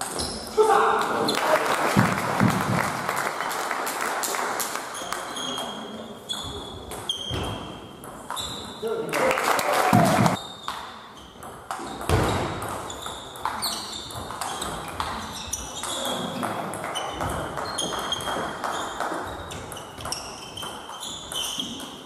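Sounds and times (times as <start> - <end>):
short high squeaks: 17.0 - 21.9.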